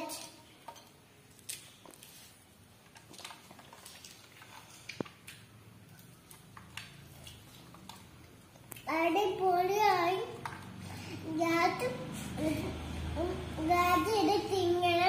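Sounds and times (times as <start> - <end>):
chewing: 2.8 - 8.9.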